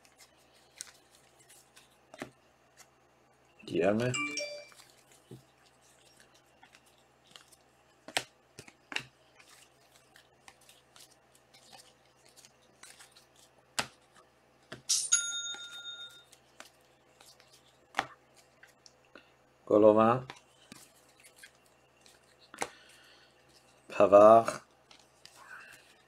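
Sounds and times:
short chime: 0:04.1 - 0:04.7
cards clicking and sliding: 0:20.3 - 0:23.0.

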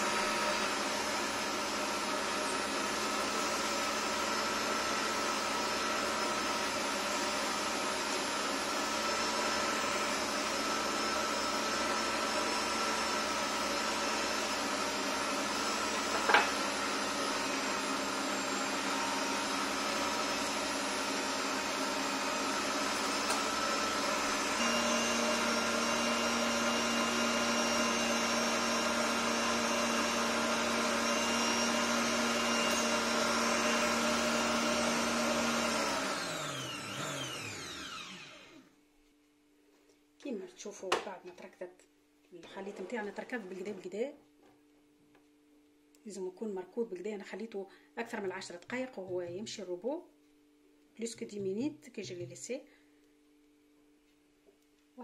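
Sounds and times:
stand mixer motor whine: 0:00.0 - 0:38.7.

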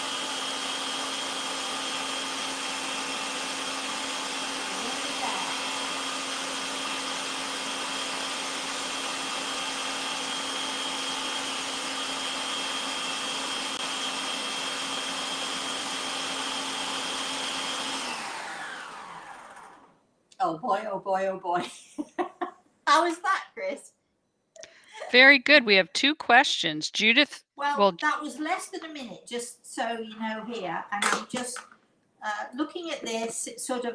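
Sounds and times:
electric stand mixer whining: 0:00.0 - 0:19.9.

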